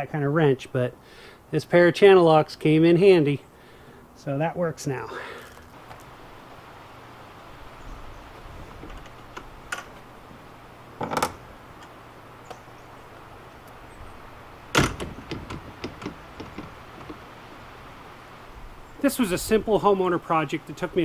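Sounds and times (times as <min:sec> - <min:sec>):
wooden gate banging closed: 0:11.0 - 0:11.9, 0:14.6 - 0:17.3
light knocks of gate: 0:14.7 - 0:17.2
gate rattling: 0:14.7 - 0:17.3.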